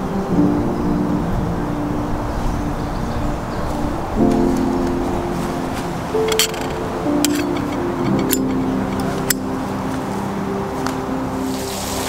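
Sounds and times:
background music low notes: 0.0s - 12.0s.

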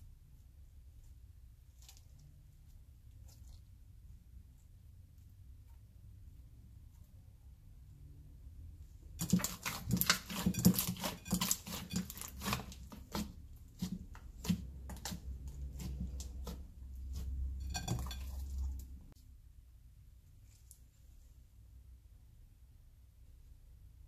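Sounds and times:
slime popping and crackling: 9.2s - 15.2s.

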